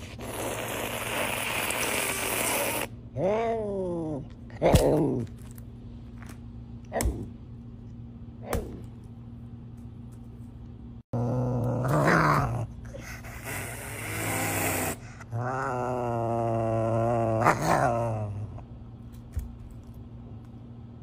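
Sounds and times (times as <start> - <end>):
wild cat hissing: 0.0 - 2.9, 12.8 - 15.6.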